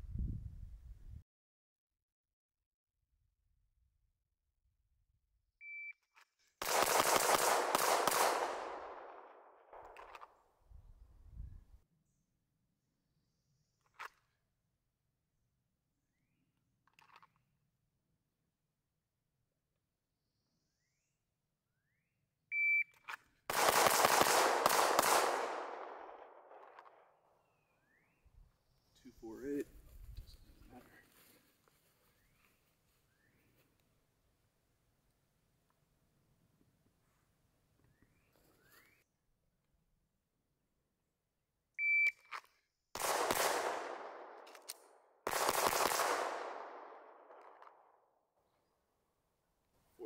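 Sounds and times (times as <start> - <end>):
rapid pistol shots: 6.6 - 10.0, 23.5 - 26.8, 43.0 - 44.4, 45.2 - 47.6
shot timer beep: 22.5 - 23.0, 41.8 - 42.3.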